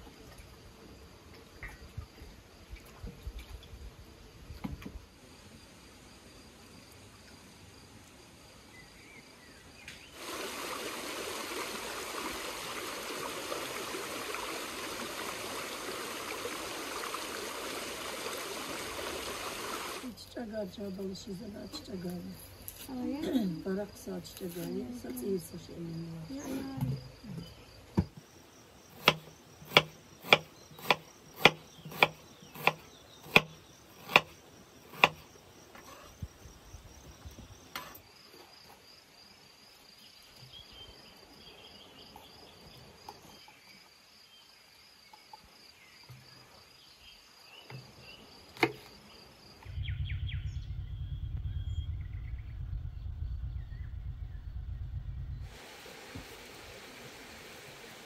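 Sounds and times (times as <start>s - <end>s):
crickets chirring: 0.0s - 58.0s
knife chopping on wooden board: 29.0s - 34.3s, 34.9s - 35.2s
low rumble: 49.6s - 55.5s.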